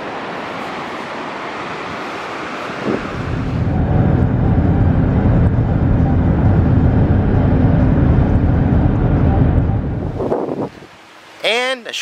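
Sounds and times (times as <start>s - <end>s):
beach wind: 0.0s - 12.0s
car interior road rumble: 2.7s - 10.9s.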